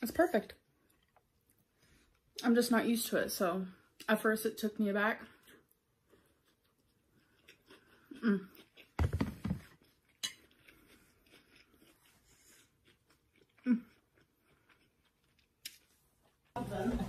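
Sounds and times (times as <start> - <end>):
person chewing food: 0.8 - 2.4, 5.2 - 16.6.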